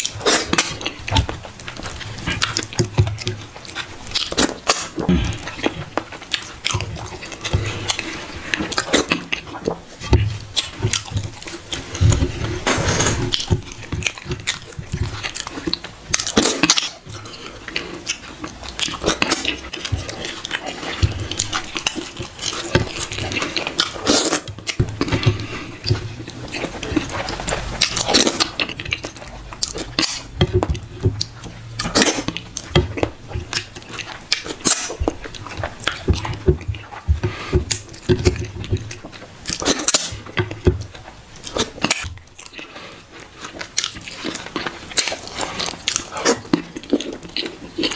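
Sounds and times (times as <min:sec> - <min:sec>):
wet chewing and lip smacking: 0:00.0 - 0:47.9.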